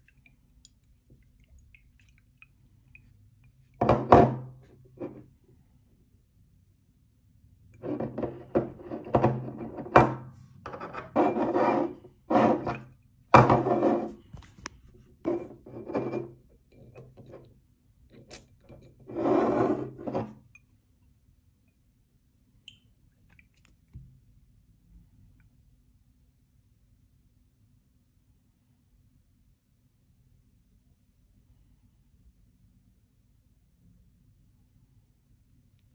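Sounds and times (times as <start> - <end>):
glass bottle scraping against cardboard: 7.8 - 14.3, 15.3 - 16.4, 18.8 - 20.4.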